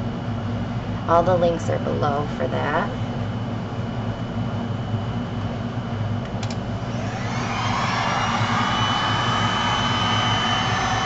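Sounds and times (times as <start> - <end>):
steady low hum: 0.0 - 11.0
heat gun fan whining: 6.2 - 11.0.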